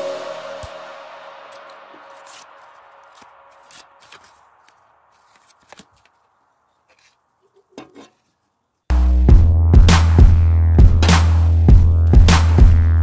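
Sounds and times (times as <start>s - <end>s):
background music: 0.0s - 4.5s, 8.9s - 13.0s.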